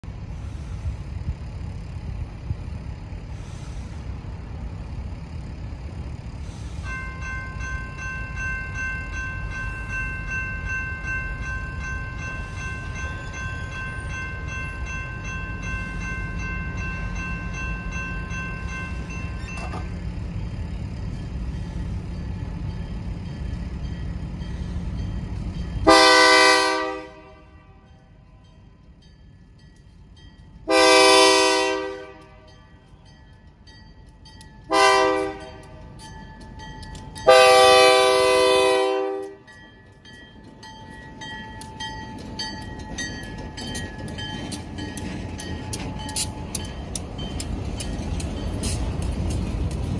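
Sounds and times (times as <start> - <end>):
locomotive air horn blast: 25.8 - 27.9, 30.7 - 32.5, 34.7 - 35.7, 37.3 - 39.4.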